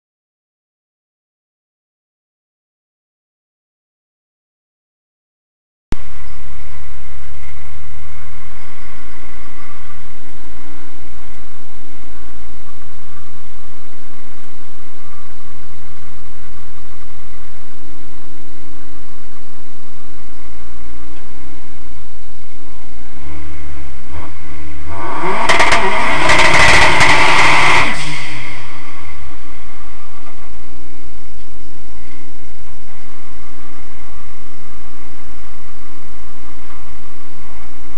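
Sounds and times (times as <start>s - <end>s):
turbo car engine idling and revving: 22.6s - 37.8s.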